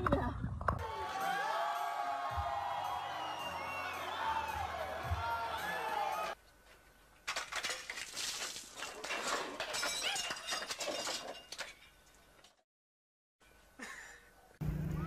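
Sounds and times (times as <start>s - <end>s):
ladder crashing onto pavement: 7.3s - 11.8s
glass breaking and clinking: 7.3s - 12.2s.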